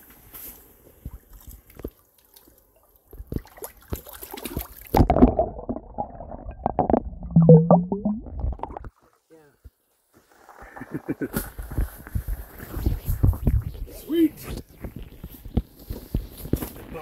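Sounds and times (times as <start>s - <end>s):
water splashing and gurgling: 1.4s - 9.1s, 10.3s - 13.9s.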